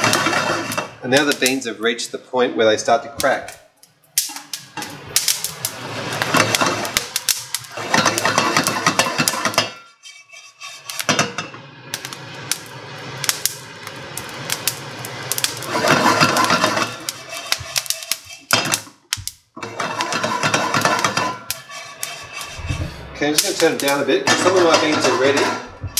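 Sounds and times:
coffee beans cracking: 4.2s - 5.8s, 6.4s - 9.4s, 12.0s - 19.4s
beans rattling in pan: 4.2s - 9.6s, 12.0s - 22.5s.

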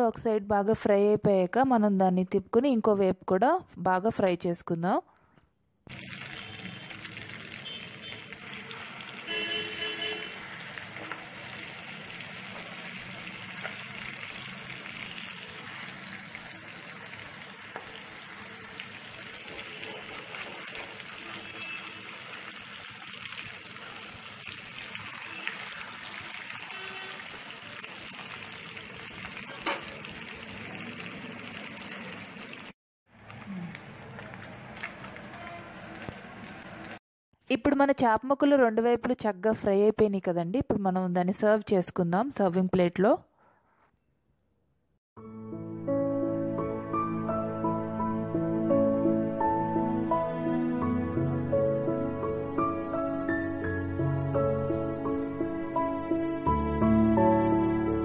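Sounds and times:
fish sizzling in hot oil: 5.9s - 37.0s.

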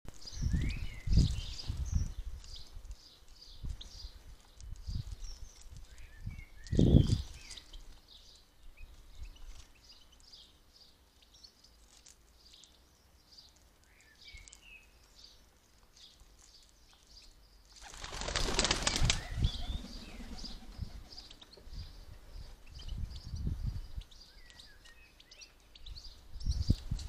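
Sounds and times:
wings flapping: 17.8s - 21.4s.

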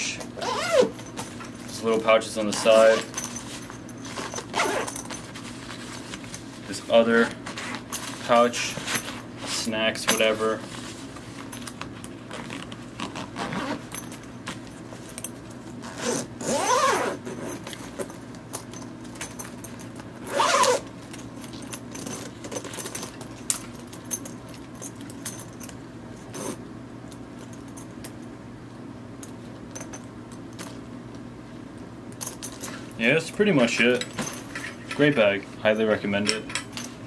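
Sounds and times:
backpack zippers being drawn: 0.4s - 1.0s, 4.1s - 5.0s, 12.3s - 13.9s, 15.8s - 17.7s, 20.2s - 20.9s
zipper pulls clicking: 0.4s - 1.0s, 4.1s - 5.1s, 12.3s - 13.9s, 15.8s - 18.1s, 20.2s - 20.8s
nylon fabric rustling: 1.8s - 9.7s, 12.2s - 13.9s, 15.8s - 17.6s, 20.2s - 20.8s.

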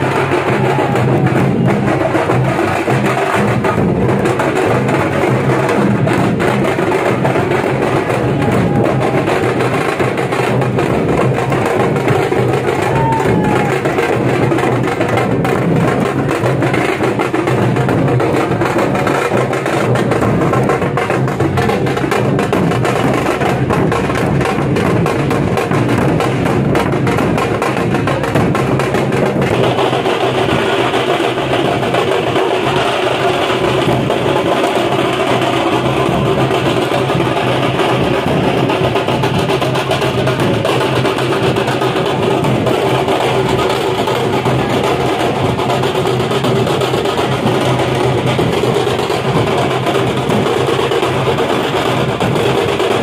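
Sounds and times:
dhol drums beating: 0.0s - 53.0s.

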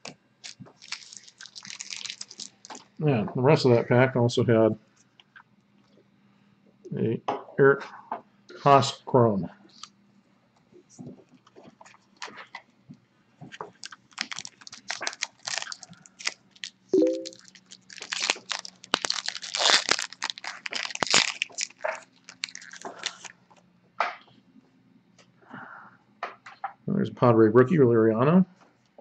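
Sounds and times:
foil wrapper tearing and crinkling: 0.4s - 2.9s, 13.6s - 23.4s.

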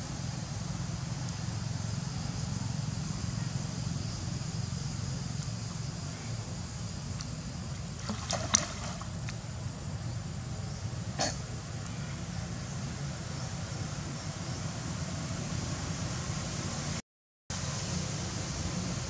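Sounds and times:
low outdoor hum: 0.0s - 19.0s
monkeys wading in water: 4.6s - 10.4s
sharp splashes: 8.0s - 9.4s.

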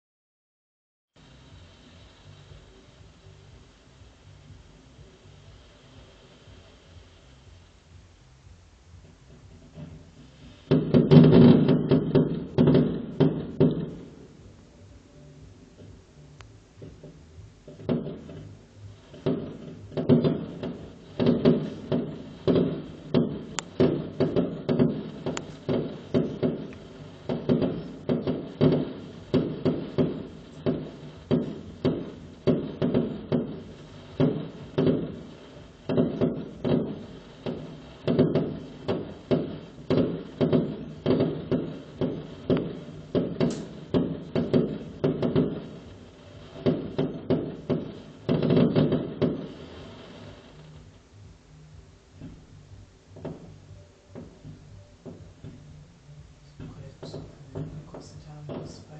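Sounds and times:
fireworks exploding: 9.2s - 14.7s, 16.8s - 51.1s, 52.2s - 55.8s, 56.4s - 58.9s.

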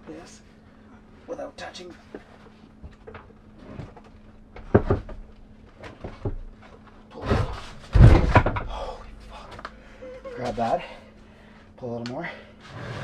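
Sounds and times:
equipment knocking and clattering: 4.5s - 6.8s, 7.4s - 9.7s.

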